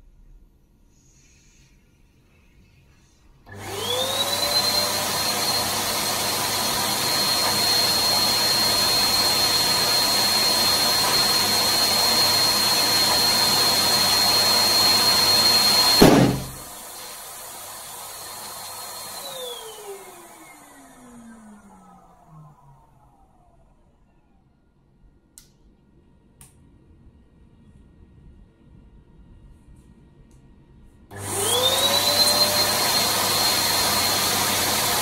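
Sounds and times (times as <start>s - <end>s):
balloon popping: 16.0s - 16.6s.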